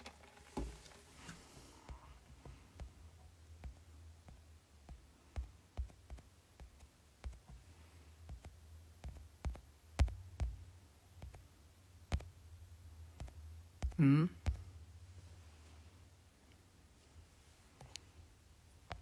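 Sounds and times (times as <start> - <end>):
steady low hum: 0.0 - 19.0
fingers tapping a smartphone: 1.8 - 12.4, 13.0 - 14.7.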